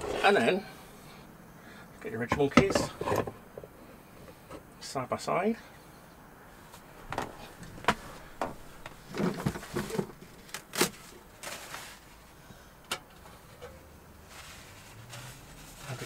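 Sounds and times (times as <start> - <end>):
cupboard opening: 7.0 - 11.7.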